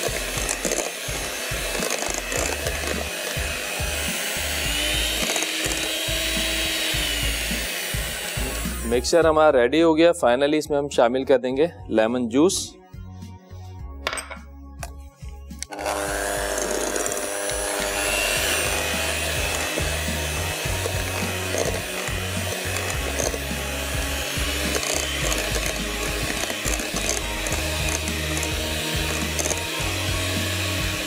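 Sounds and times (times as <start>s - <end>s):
electric hand mixer whirring: 0.0s - 9.1s, 15.6s - 31.0s.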